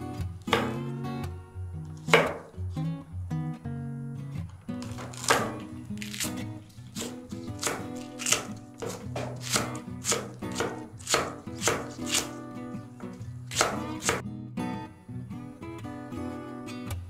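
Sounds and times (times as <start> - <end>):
knife chopping on wooden board: 0.5 - 0.8, 2.1 - 2.6, 4.8 - 12.4, 13.0 - 14.2.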